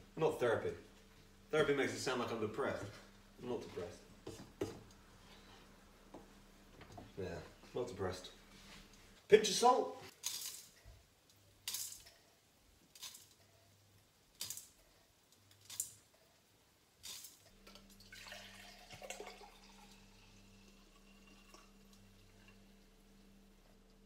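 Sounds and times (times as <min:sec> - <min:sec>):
steady low hum: 0:00.0 - 0:09.3, 0:17.4 - 0:24.0
salt grains landing in a pan: 0:11.6 - 0:12.1, 0:12.9 - 0:13.4, 0:14.3 - 0:14.8, 0:15.4 - 0:16.1, 0:17.0 - 0:17.6
wine pouring into a glass: 0:17.6 - 0:23.2.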